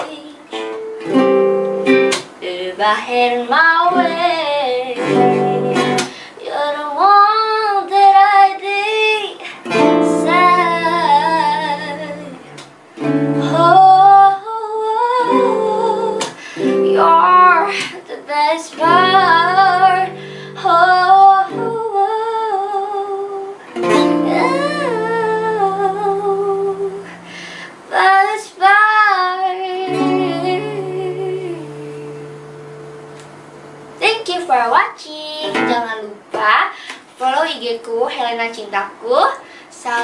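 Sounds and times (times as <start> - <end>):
plucked guitar chords: 0.0 - 6.2, 9.6 - 34.4, 35.3 - 36.6
girl singing: 0.0 - 33.0, 34.0 - 40.0.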